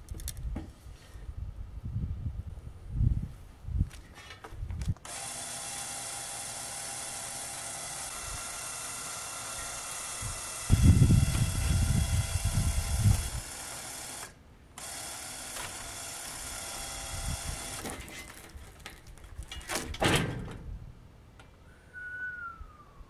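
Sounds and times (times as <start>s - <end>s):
winch running: 5.0s - 18.4s
log scraping on steel ramps: 13.0s - 20.6s.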